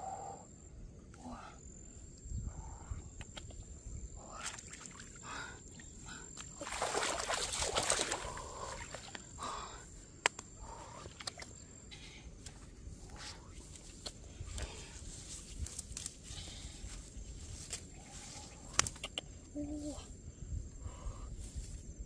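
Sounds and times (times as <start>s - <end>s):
grass rustling and scuffling: 12.4s - 19.0s.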